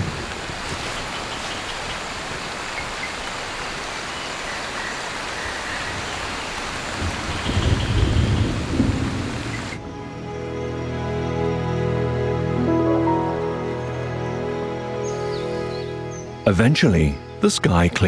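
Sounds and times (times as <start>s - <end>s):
heavy rain on leaves: 0.0s - 9.8s
low thunder rumble: 6.9s - 10.0s.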